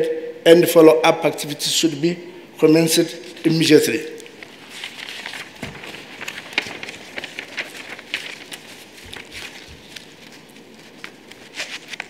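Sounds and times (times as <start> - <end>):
paper rustling: 3.2 - 12.0.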